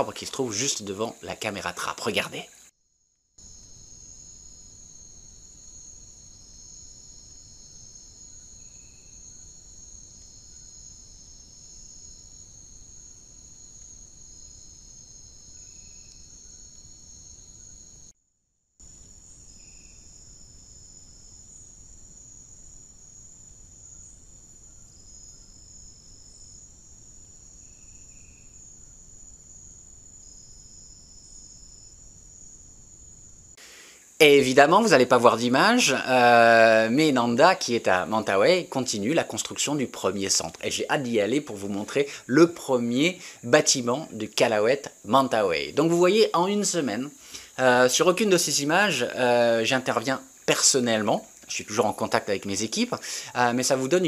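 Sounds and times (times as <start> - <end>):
low hiss: 0.0 - 2.7, 3.4 - 18.1, 18.8 - 54.0
crickets trilling: 0.0 - 18.2, 18.8 - 54.0.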